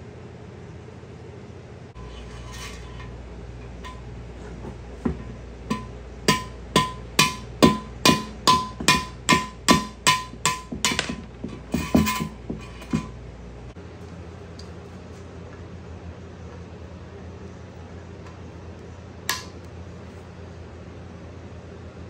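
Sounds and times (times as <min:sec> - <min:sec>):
hammer striking metal rod: 0:05.0 - 0:13.2, 0:19.3 - 0:19.5.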